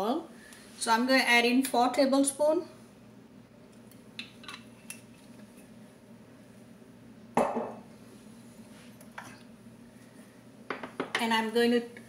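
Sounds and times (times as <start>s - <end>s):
faint steady hum: 0.0s - 12.0s
glass bottle set down on countertop: 7.4s - 7.8s, 10.7s - 11.2s.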